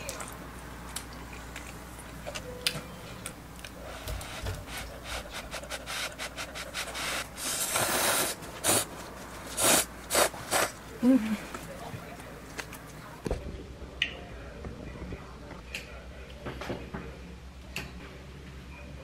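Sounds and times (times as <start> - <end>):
rubbing and rustling handling: 3.7 - 13.0.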